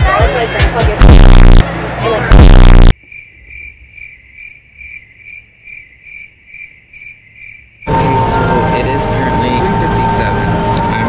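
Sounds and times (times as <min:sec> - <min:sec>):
crickets chirping: 0:02.9 - 0:07.9.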